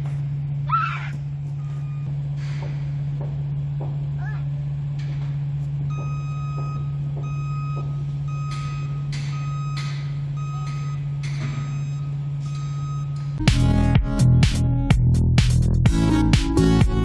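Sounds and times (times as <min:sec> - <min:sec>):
low hum: 0:00.0 - 0:17.0
vehicle reversing alarm beeping: 0:01.4 - 0:02.3, 0:05.6 - 0:13.5
loud electronic music: 0:13.4 - 0:17.0.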